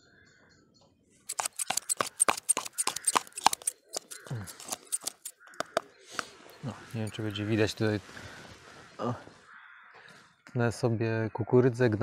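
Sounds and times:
scissors snipping: 0:01.3 - 0:05.8.

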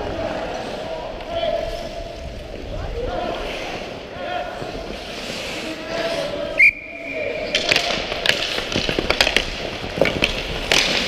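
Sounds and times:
sticks and puck clacking on ice: 0:00.0 - 0:11.0
referee's whistle blast: 0:06.6 - 0:07.4.

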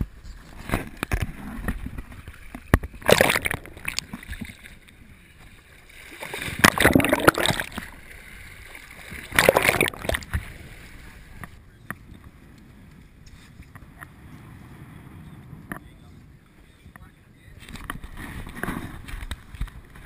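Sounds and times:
ocean water splashing: 0:00.7 - 0:11.6.

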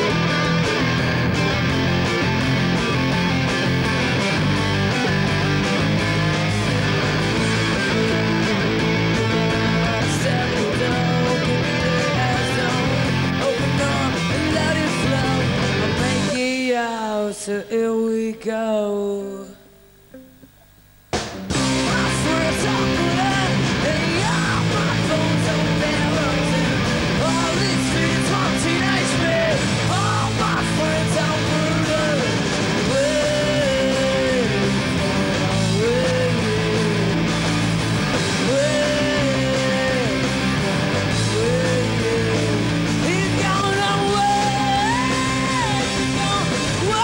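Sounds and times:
punk rock band playing live: 0:00.0 - 0:16.5, 0:21.1 - 0:47.0.

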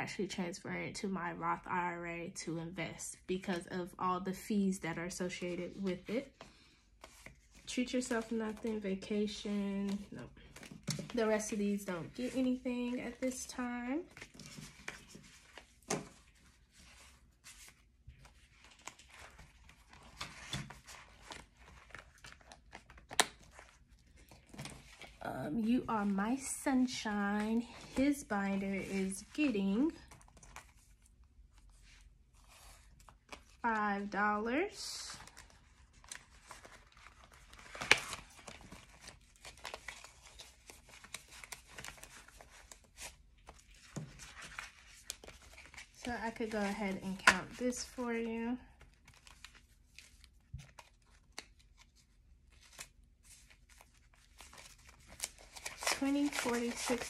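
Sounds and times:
paper and plastic crinkling: 0:07.0 - 0:25.2, 0:35.1 - 0:57.0.

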